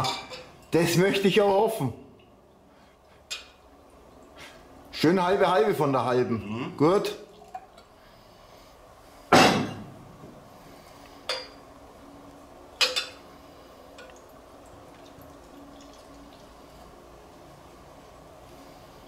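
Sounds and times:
beer pouring into glass: 14.0s - 16.8s.

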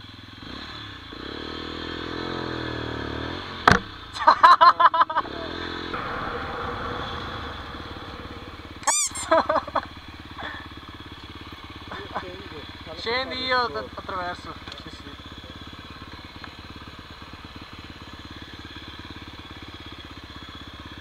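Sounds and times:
motorcycle engine revving: 0.0s - 21.0s
loud sharp pulses: 5.3s - 11.0s.

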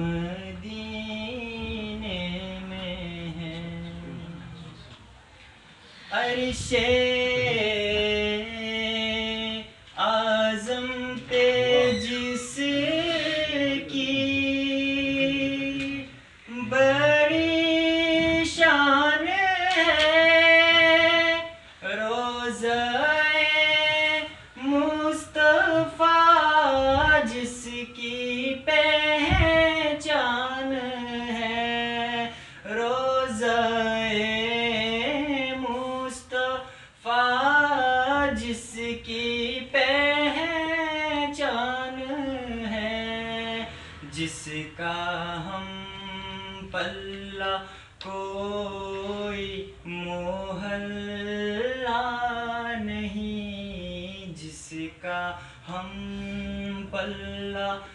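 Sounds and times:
person singing unaccompanied: 6.1s - 57.9s.

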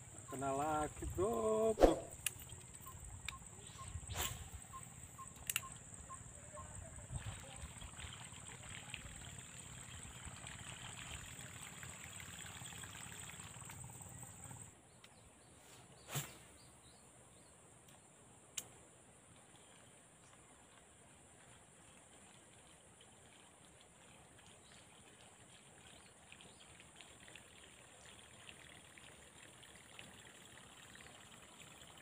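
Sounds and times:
fishing reel clicks: 5.3s - 5.8s.

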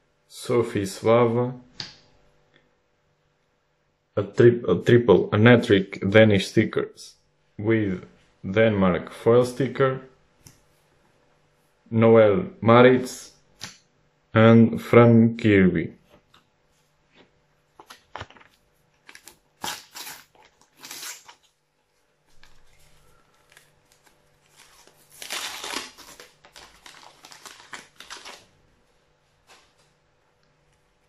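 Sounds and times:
foil wrapper tearing and crinkling: 17.8s - 21.6s, 22.3s - 28.5s.

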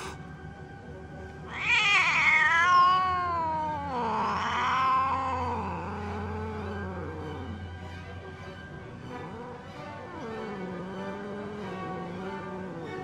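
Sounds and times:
cat yowling: 1.5s - 7.6s, 9.2s - 13.0s.

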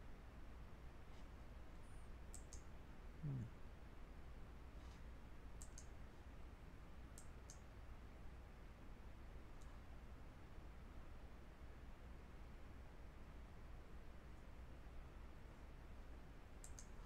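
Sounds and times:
faint low hum: 0.0s - 17.0s
computer mouse button clicks: 5.6s - 5.9s, 16.6s - 16.9s.

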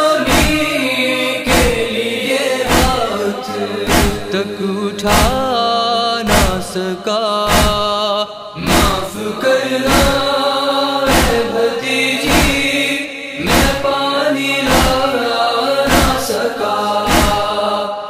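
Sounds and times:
chorus chanting: 0.0s - 18.0s
steady thumping beat: 0.3s - 0.7s, 1.5s - 1.8s, 2.7s - 3.1s, 3.9s - 4.4s, 5.1s - 5.5s, 6.3s - 6.8s, 7.5s - 7.9s, 8.7s - 9.1s, 9.9s - 10.2s, 11.1s - 11.5s, 12.3s - 12.6s, 13.5s - 13.8s, 14.7s - 15.0s, 15.9s - 16.3s, 17.1s - 17.5s.

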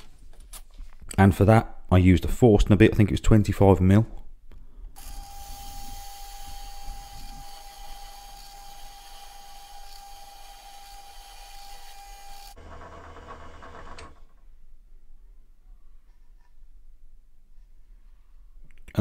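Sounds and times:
drill press whining: 5.0s - 14.4s.

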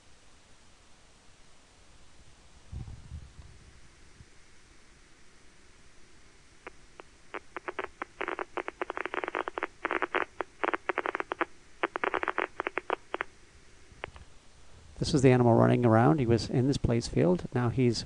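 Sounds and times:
sharp electrical pops: 6.6s - 14.3s.

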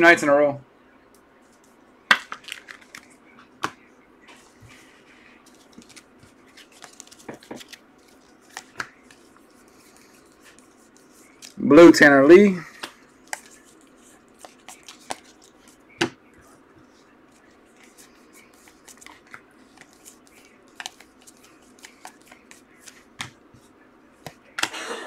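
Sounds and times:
trading cards sliding and clicking: 17.8s - 23.4s.

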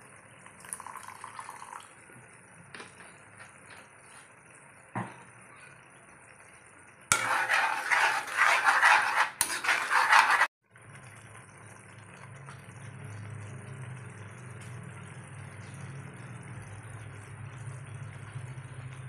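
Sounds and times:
faint simmer: 0.0s - 19.0s
metal spoon scraping a wok: 7.1s - 10.5s.

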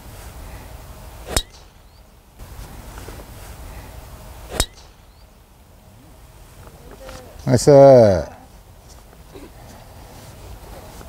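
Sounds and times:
low outdoor hush: 0.0s - 11.0s
golf club striking ball: 1.2s - 2.0s, 4.5s - 5.2s.

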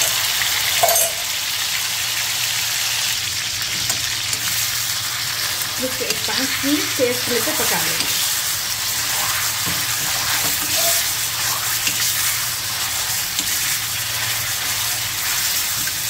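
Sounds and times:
meat sizzling in hot oil: 0.0s - 16.0s
steel spoon scraping pan: 7.6s - 16.0s.

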